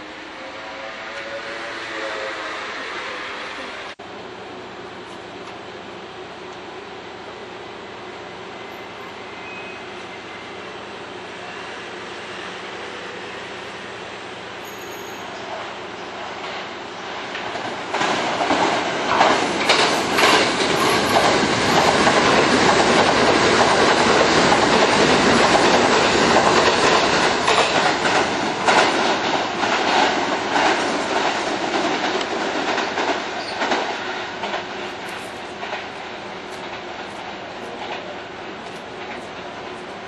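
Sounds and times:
electric train passing at speed: 0:00.0 - 0:40.0
wheels clicking over rail joints: 0:17.3 - 0:39.9.

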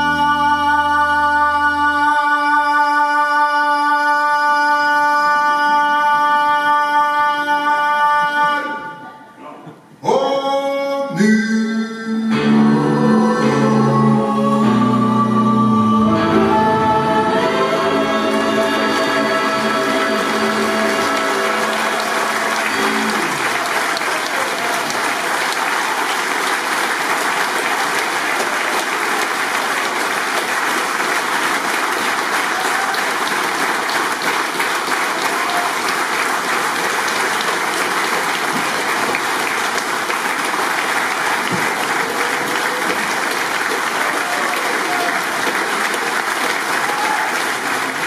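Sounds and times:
choir singing chord: 0:12.3 - 0:23.6
audience applauding: 0:18.2 - 0:48.0.

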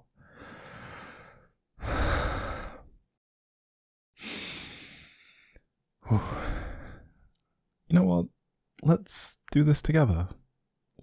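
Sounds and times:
man breathing heavily: 0:00.1 - 0:03.0, 0:04.2 - 0:07.2.

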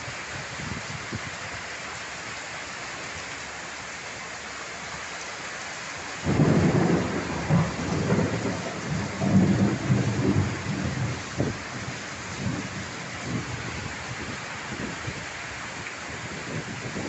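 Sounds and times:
heavy rain pouring: 0:00.0 - 0:17.0
thunderclap rumbling: 0:06.2 - 0:13.8.

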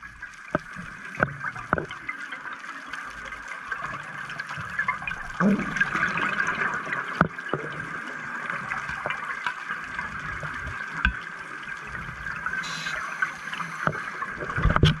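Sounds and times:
diver regulator bubbling and hiss: 0:10.1 - 0:15.0
small clicks: 0:12.6 - 0:15.0.

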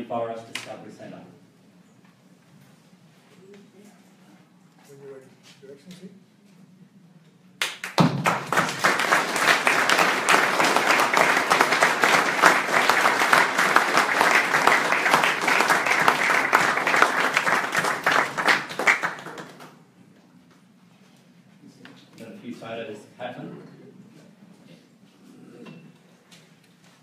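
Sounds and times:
audience applauding: 0:07.6 - 0:19.8.

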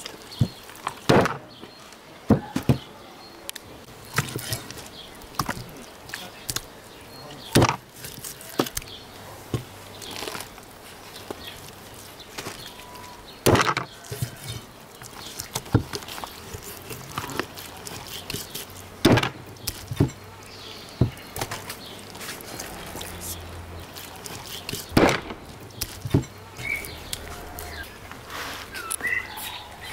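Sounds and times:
cleaver striking chopping block: 0:13.5 - 0:13.9, 0:19.0 - 0:20.2.

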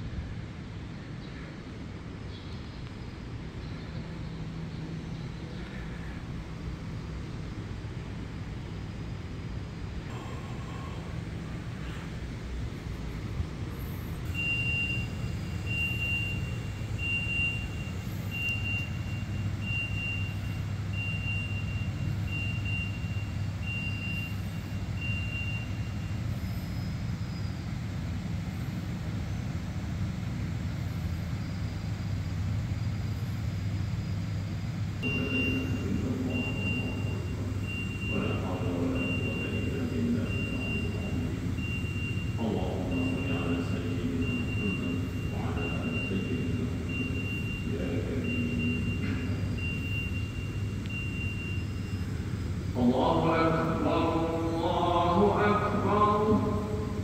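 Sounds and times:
steady low rumble: 0:00.0 - 0:57.0
short high-pitched beeps: 0:14.2 - 0:27.1, 0:35.0 - 0:52.4.

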